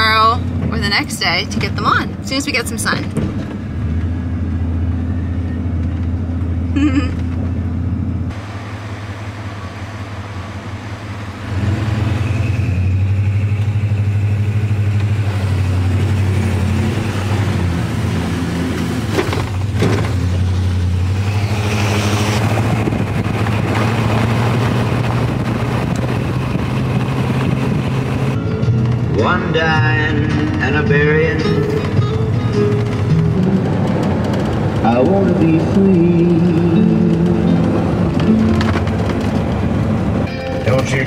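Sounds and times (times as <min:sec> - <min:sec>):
road noise: 0:00.0 - 0:41.0
truck engine drone: 0:00.0 - 0:41.0.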